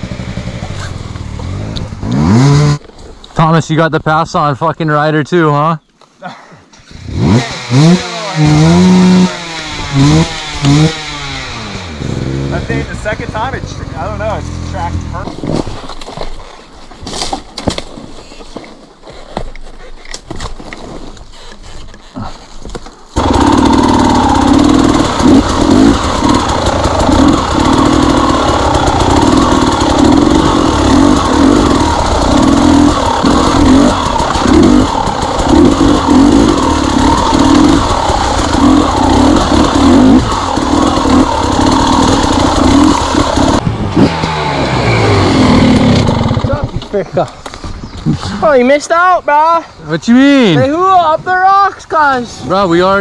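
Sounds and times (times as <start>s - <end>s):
two-stroke motorcycle engine revving: 0.0s - 2.9s, 6.8s - 15.6s, 23.2s - 47.0s.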